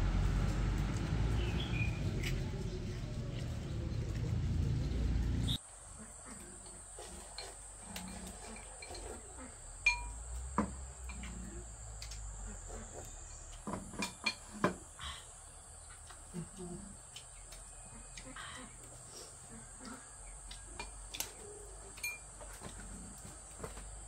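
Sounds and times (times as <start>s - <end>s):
light clinks and knocks: 7.2s - 12.3s, 13.3s - 14.9s, 20.5s - 23.0s.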